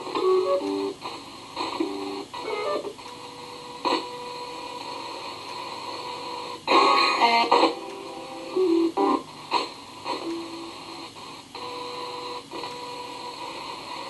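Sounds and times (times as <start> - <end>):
radio static hiss: 0.0 - 14.0
chopped radio broadcast snatches: 3.8 - 4.2, 9.0 - 10.3.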